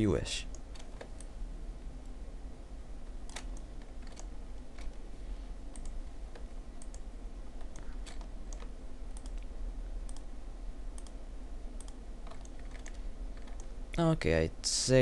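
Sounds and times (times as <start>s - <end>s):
steady low hum: 0.0s - 15.0s
keyboard keystrokes: 11.8s - 13.7s.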